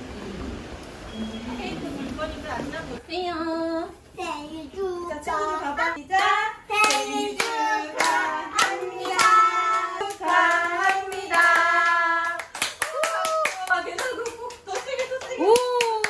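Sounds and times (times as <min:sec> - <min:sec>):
child singing: 0:04.2 - 0:12.3
hand claps: 0:06.8 - 0:16.0.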